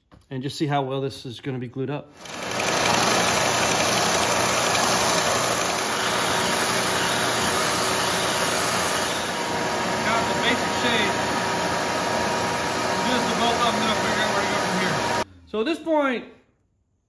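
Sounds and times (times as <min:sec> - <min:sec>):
belt sander sanding wood: 0:02.2 - 0:15.2.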